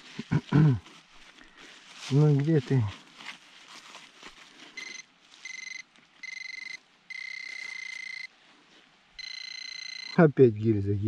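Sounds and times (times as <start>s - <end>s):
scraping in soil: 0.0s - 5.5s
pinpointer buzzing: 4.8s - 8.3s, 9.2s - 10.2s.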